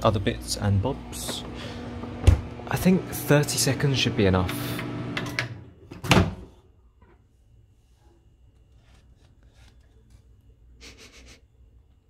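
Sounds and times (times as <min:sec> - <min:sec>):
faint handling sounds: 0:07.0 - 0:10.6.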